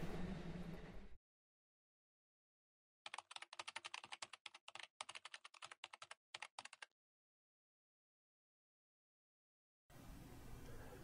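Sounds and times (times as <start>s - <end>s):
computer keyboard typing: 3.0s - 6.9s.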